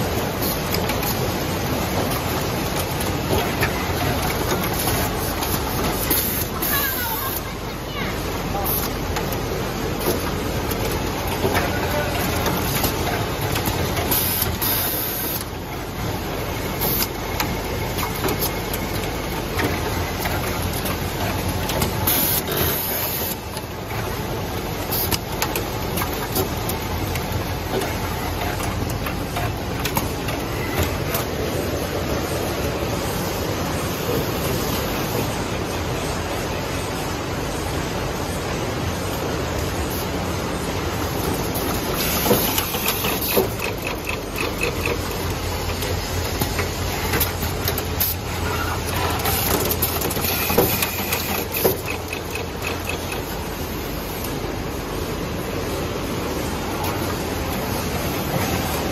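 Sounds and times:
machine mechanical hum: 0:00.0 - 0:58.9
sharp clicks and knocks: 0:23.5 - 0:31.4, 0:41.2 - 0:48.2, 0:48.9 - 0:53.4
sharp mechanical clacks: 0:41.2 - 0:54.4.

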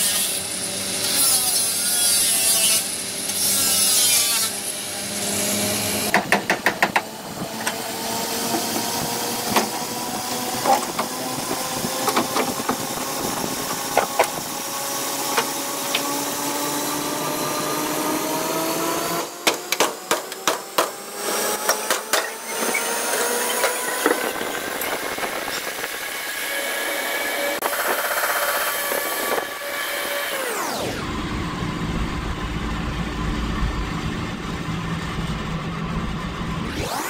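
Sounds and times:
steady whine rising in pitch: 0:07.2 - 0:19.4, 0:20.6 - 0:37.0.

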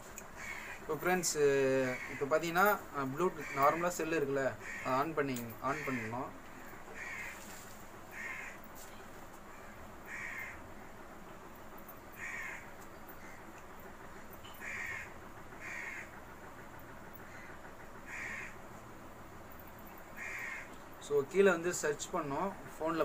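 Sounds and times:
bird calling: 0:00.4 - 0:01.0, 0:03.1 - 0:10.6, 0:12.2 - 0:13.5, 0:14.1 - 0:16.2, 0:19.9 - 0:20.8.

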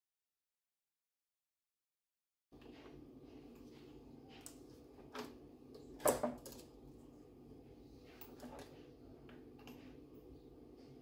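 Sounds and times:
low background hum: 0:02.5 - 0:11.0.

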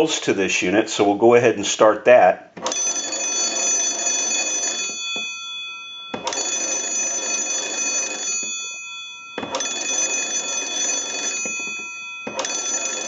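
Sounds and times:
telephone bells ringing: 0:02.6 - 0:13.0.

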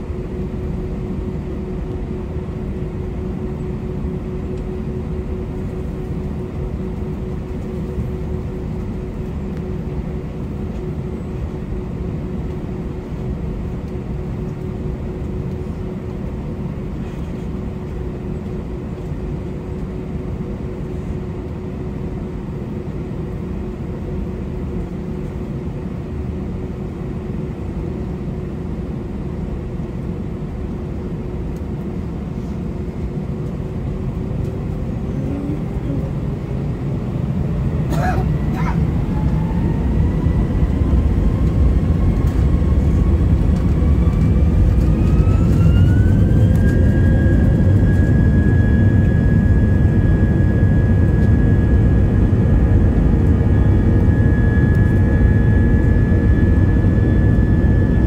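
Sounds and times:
jet engines spooling up: 0:30.7 - 0:58.0.

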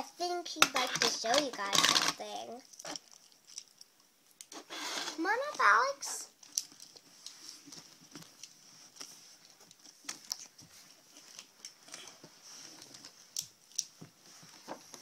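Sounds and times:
plastic toy clicks and rustles: 0:00.6 - 0:03.8.

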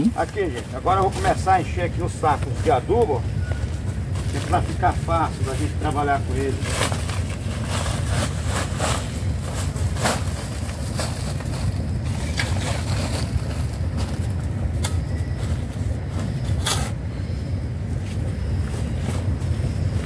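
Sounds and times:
compost scraping and rustling: 0:00.0 - 0:20.0.

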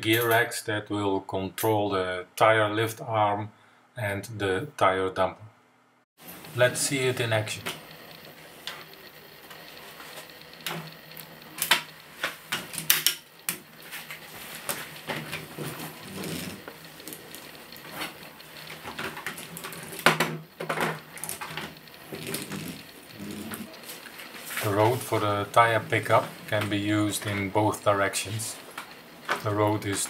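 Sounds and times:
plastic gears clicking and ratcheting: 0:15.0 - 0:25.2.

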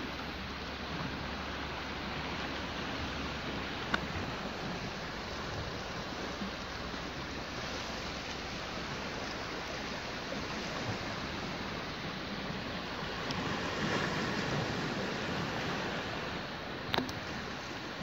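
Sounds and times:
small waves washing on rocks: 0:00.0 - 0:18.0
wind on microphone: 0:00.9 - 0:18.0.

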